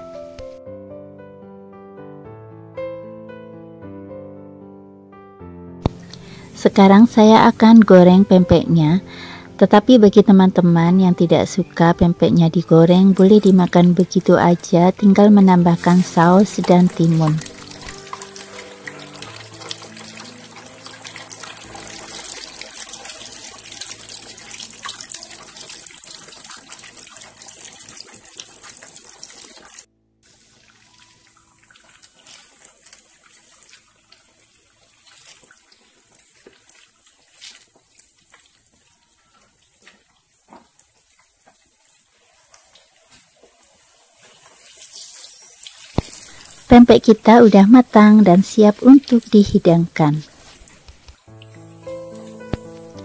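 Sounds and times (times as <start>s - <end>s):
food sizzling in hot oil: 5.9s - 9.5s, 12.5s - 53.0s
oil popping: 12.7s - 41.9s, 45.4s - 46.7s, 50.4s - 53.0s.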